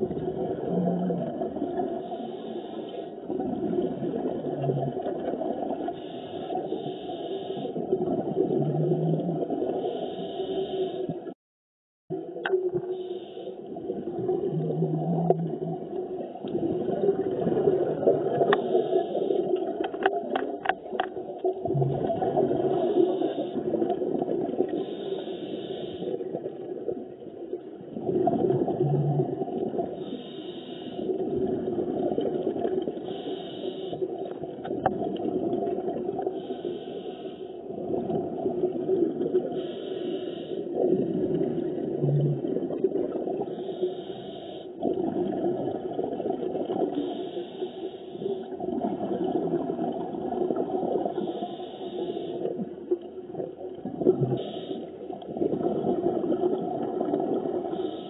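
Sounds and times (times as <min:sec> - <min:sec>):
bubbling exhaled air underwater: 0:00.0 - 0:02.3, 0:03.2 - 0:11.4, 0:12.1 - 0:36.9, 0:37.6 - 0:43.8, 0:44.8 - 0:47.3, 0:48.2 - 0:58.0
regulator inhalation hiss: 0:02.0 - 0:03.2, 0:06.0 - 0:07.8, 0:09.8 - 0:11.1, 0:13.0 - 0:13.7, 0:18.6 - 0:19.5, 0:24.8 - 0:26.2, 0:30.0 - 0:31.2, 0:33.0 - 0:34.2, 0:36.4 - 0:37.6, 0:39.5 - 0:40.7, 0:43.5 - 0:44.8, 0:46.9 - 0:48.5, 0:51.2 - 0:52.6, 0:54.4 - 0:55.0, 0:57.7 - 0:58.0.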